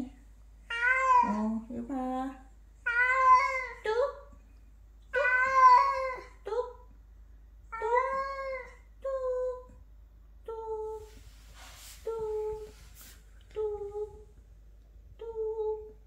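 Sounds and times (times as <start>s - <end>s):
cat meowing: 0.7s - 1.4s, 2.9s - 3.8s, 5.1s - 6.2s.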